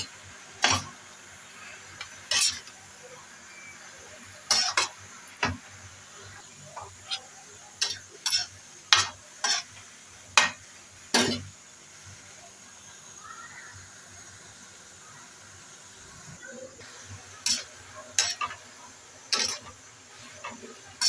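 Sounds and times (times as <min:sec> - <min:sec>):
vegetables sizzling: 0:00.0 - 0:21.0
metal spatula scraping a pan: 0:01.9 - 0:02.8, 0:04.4 - 0:05.6, 0:06.7 - 0:09.8, 0:17.3 - 0:18.7, 0:19.3 - 0:21.0.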